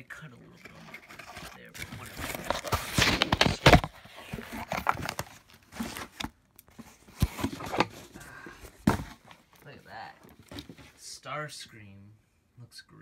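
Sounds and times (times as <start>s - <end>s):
cardboard box rustling and scraping: 0.5s - 9.5s, 10.2s - 11.0s.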